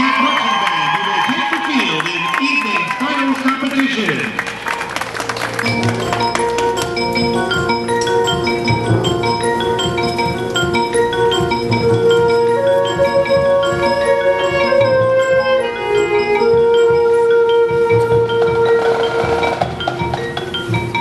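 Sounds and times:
mallet percussion playing quick runs: 3.4 - 21.0
long held chords: 4.3 - 21.0
low drum thuds: 5.6 - 21.0.

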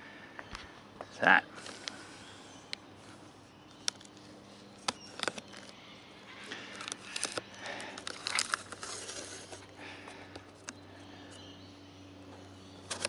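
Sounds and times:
plastic and cardboard box handled: 8.0 - 9.7.

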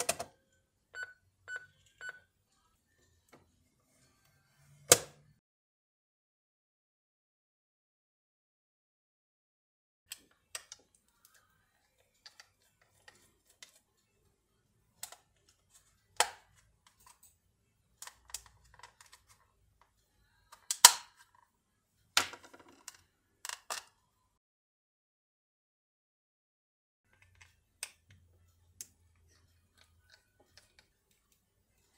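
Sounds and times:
plastic clicks and snaps: 20.5 - 21.3.

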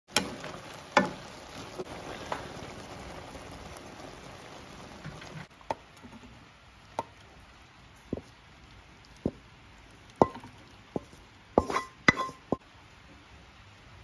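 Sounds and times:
egg and tomato sizzling in a wok: 0.1 - 13.4
wooden spatula knocking against pan: 10.2 - 12.6.

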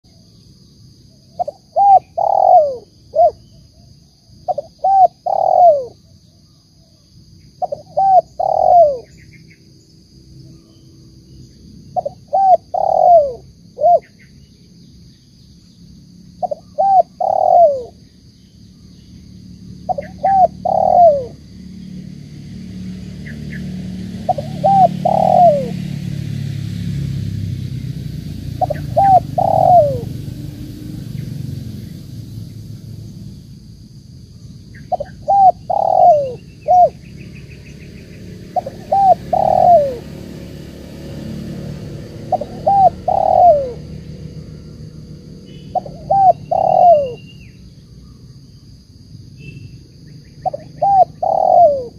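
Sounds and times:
dove cooing: 1.4 - 3.4, 4.5 - 6.0, 7.6 - 9.1, 12.0 - 14.1, 16.4 - 18.0, 19.8 - 21.4, 24.1 - 26.0, 28.5 - 30.3, 34.9 - 37.0, 38.3 - 40.3, 41.3 - 44.5, 45.5 - 47.4, 50.4 - 51.9.

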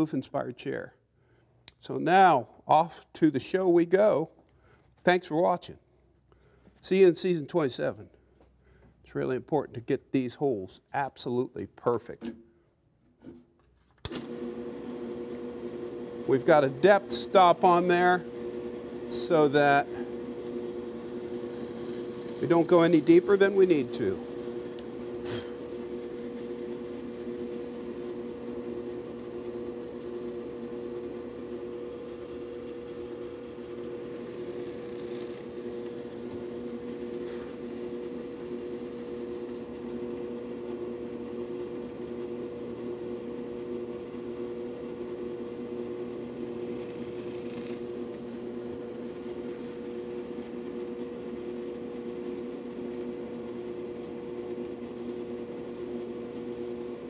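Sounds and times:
drill press motor hum: 14.0 - 57.0
drill bit boring through wood: 14.3 - 56.9.

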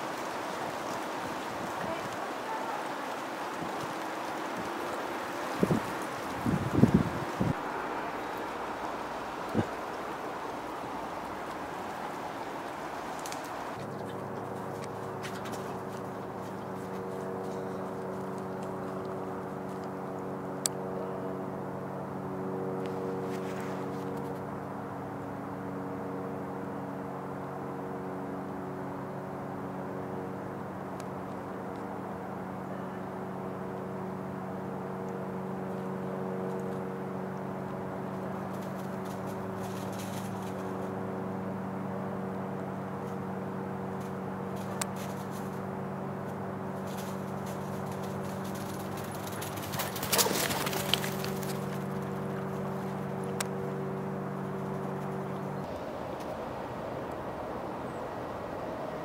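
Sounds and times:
steady mechanical hum: 0.0 - 59.0
faint clicks: 11.4 - 14.1.

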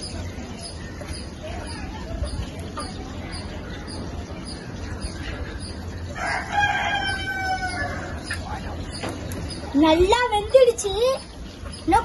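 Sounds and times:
rooster crowing: 6.2 - 8.3.

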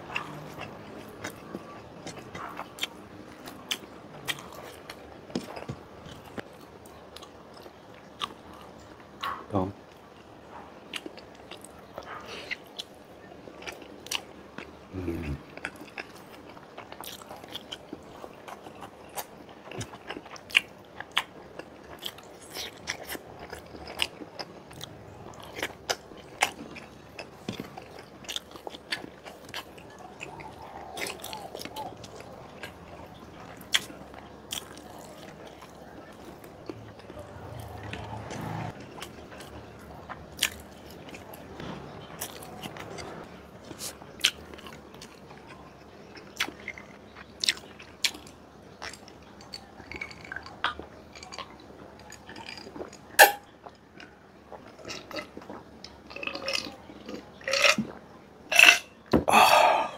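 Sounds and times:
man chewing wetly: 0.0 - 59.9
falling vocal hum: 59.3 - 59.9.

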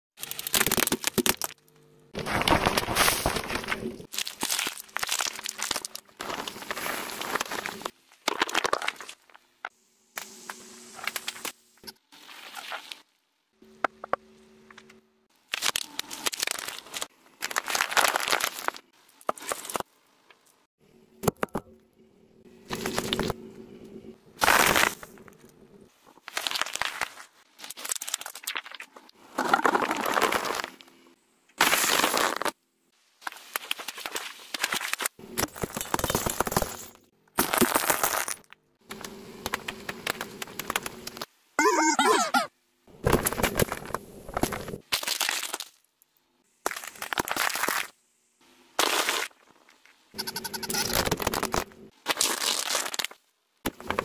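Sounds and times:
tyre crushing plastic objects: 2.2 - 9.2, 34.6 - 38.6.

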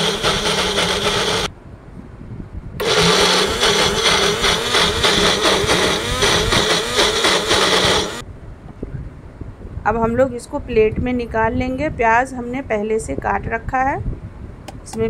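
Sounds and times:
mixer grinder grinding: 0.0 - 1.5, 2.8 - 8.2.

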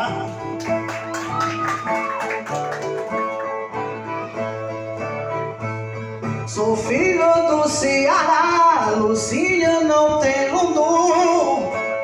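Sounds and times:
steel-strung guitars strummed and plucked: 0.0 - 12.0.

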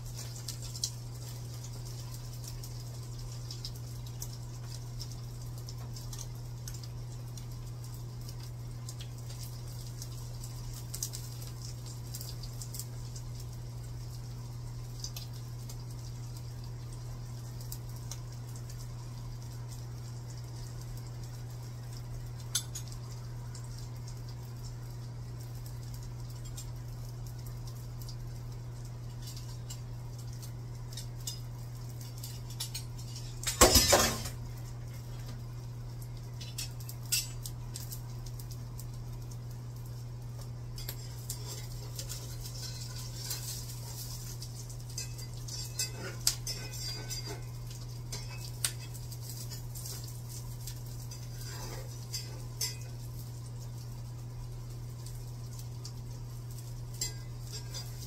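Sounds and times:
steady low hum: 0.0 - 58.0
utensils clinking and scraping in a pan: 22.4 - 23.1, 28.9 - 34.4, 36.2 - 38.0, 40.4 - 54.1, 54.9 - 58.0.

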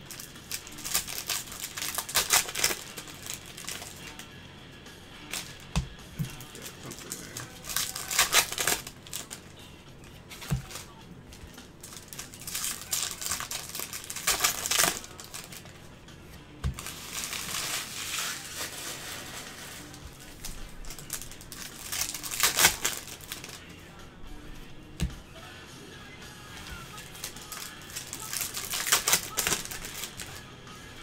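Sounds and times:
cards rustling and flicking: 0.0 - 30.5.

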